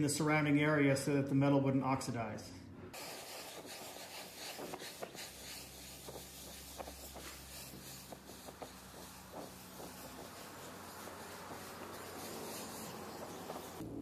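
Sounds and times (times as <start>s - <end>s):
gas torch hissing: 2.9s - 14.0s.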